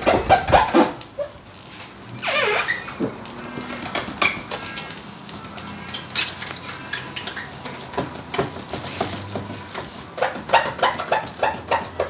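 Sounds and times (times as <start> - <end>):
cloth squeaking on plastic lens: 2.2 - 3.4.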